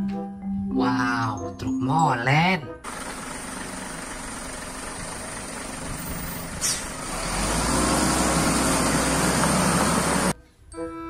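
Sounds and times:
diesel truck engine running: 0:02.8 - 0:10.4.

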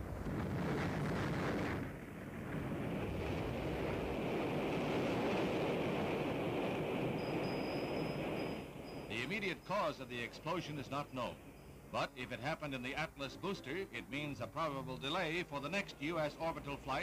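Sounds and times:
rocket exploding rumble: 0:00.0 - 0:06.8.

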